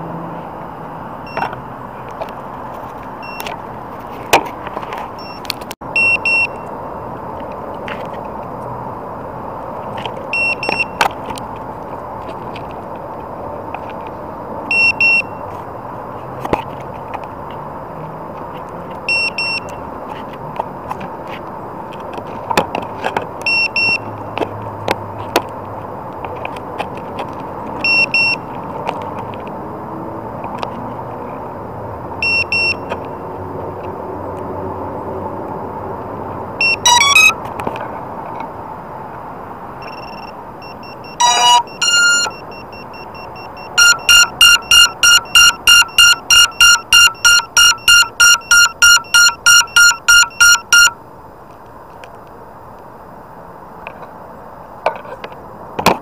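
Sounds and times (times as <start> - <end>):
electronic beeps and chimes: 36.6 - 37.4, 39.8 - 51.0
rising electronic chirp: 36.6 - 37.4, 39.8 - 51.0.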